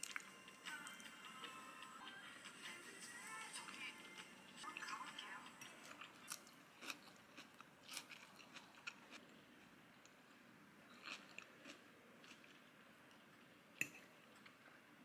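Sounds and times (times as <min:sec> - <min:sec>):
chewing crisp salad: 0:00.0 - 0:00.4, 0:03.8 - 0:14.6.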